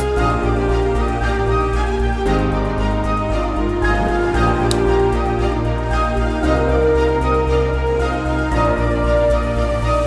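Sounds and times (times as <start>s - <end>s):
music with held notes: 0.0s - 10.0s
pulsing bass: 1.2s - 7.6s.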